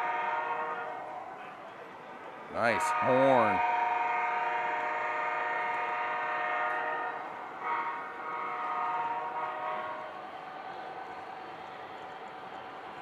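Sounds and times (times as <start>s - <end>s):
model locomotive horn blasts: 0.0s - 1.2s, 2.8s - 10.1s
steady background noise: 0.0s - 13.0s.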